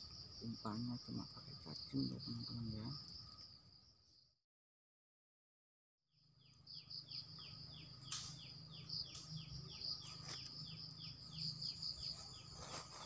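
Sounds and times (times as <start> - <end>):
insect trill: 0.0 - 4.4, 6.2 - 13.0
falling bird chirp: 6.4 - 13.0.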